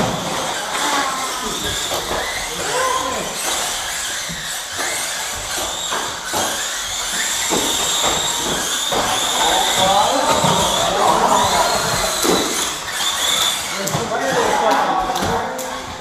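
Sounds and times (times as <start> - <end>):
people talking: 0.0 - 3.5, 9.0 - 12.7, 13.7 - 16.0
electric toy car motors whining: 0.0 - 16.0.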